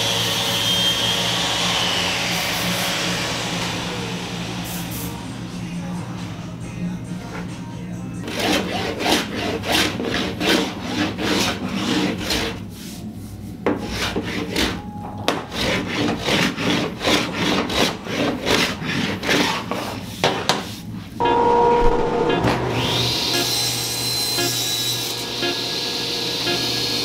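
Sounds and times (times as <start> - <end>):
hand plane strokes on wood: 8.3 - 13.0, 13.7 - 20.8.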